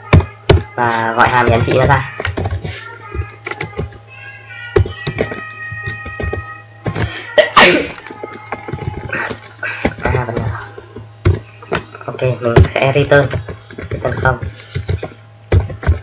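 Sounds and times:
faint background music: 0.0s - 16.0s
steady low hum: 0.0s - 16.0s
computer keyboard typing: 13.1s - 16.0s.

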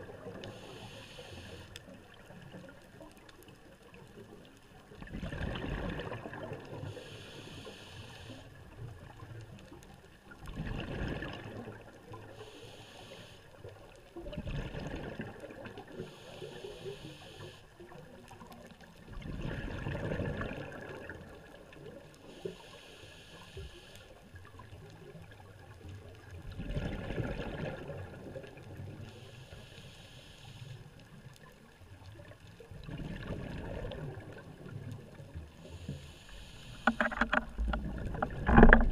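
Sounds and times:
exhaled bubbles gurgling: 0.0s - 1.0s, 1.8s - 7.4s, 8.5s - 12.5s, 13.7s - 16.6s, 17.8s - 22.4s, 24.4s - 29.2s, 32.1s - 35.9s, 36.8s - 38.9s
diver breathing through regulator: 0.4s - 1.8s, 6.8s - 8.5s, 12.4s - 13.6s, 15.9s - 17.7s, 22.3s - 24.1s, 29.1s - 30.9s, 35.6s - 37.7s.

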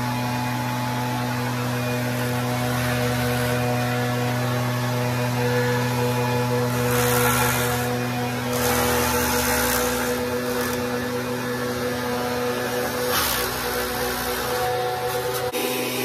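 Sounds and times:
leaf blower engine running: 0.0s - 16.0s.

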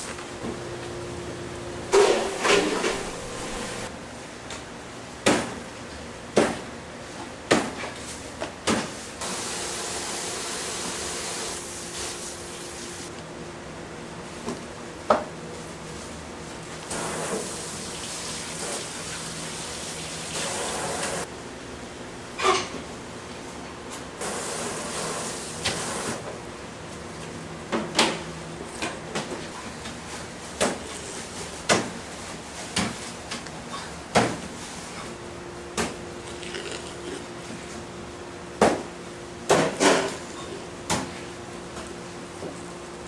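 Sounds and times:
kitchen knocks and clatters: 1.9s - 3.8s.

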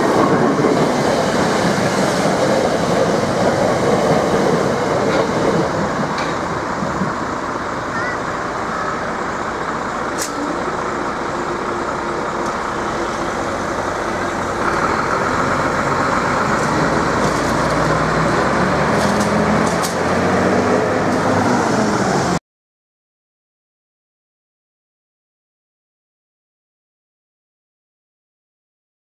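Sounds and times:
cars passing: 7.3s - 22.4s.

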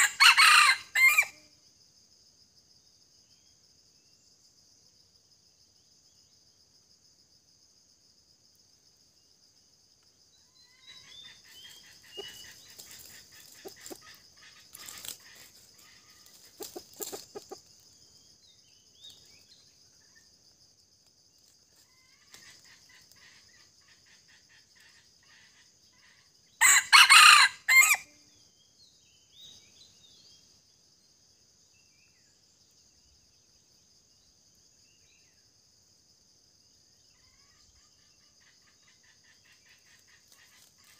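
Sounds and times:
rooster crowing: 0.0s - 1.4s, 26.6s - 28.1s
high insect drone: 0.0s - 40.9s
chicken clucking: 11.5s - 17.7s.

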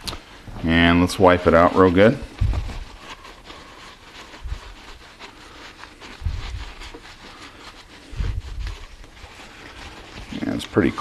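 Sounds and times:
towel rubbing inside steel bore: 0.0s - 11.0s
dull low thumps: 2.4s - 2.9s.

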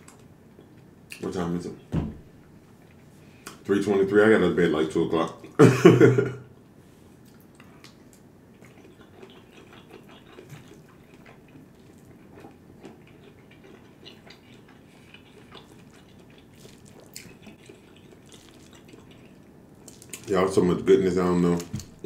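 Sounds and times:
man chewing with mouth clicks: 7.2s - 20.3s.

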